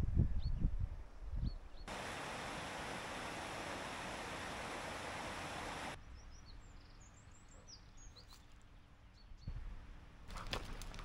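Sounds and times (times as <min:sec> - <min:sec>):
small birds chirping: 0:01.4 - 0:09.6
faint outdoor hush: 0:01.9 - 0:06.0
river water rushing: 0:01.9 - 0:06.0.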